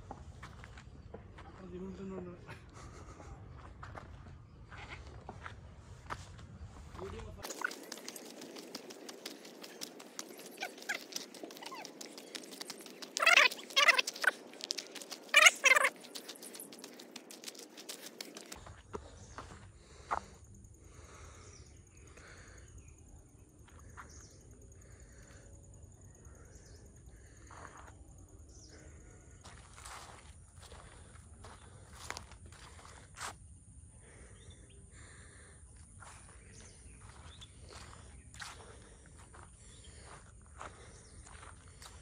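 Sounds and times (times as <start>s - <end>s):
footsteps scuffing on rough path: 3.6s - 19.6s, 29.4s - 33.3s, 36.1s - 42.0s
animal calling: 7.4s - 18.6s
high insect trill: 7.4s - 18.7s.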